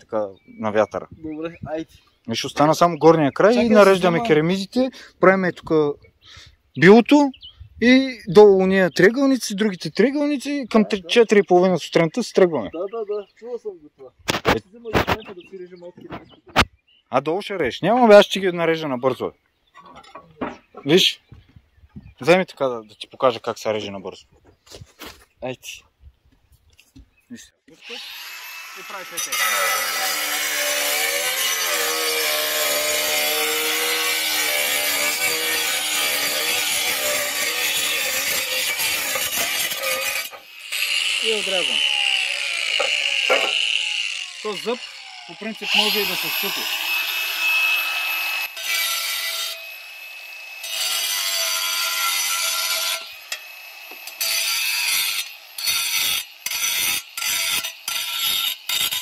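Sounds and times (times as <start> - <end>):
angle grinder cutting roof tile: 3.4 - 4.4, 14.3 - 15.3, 27.7 - 59.0.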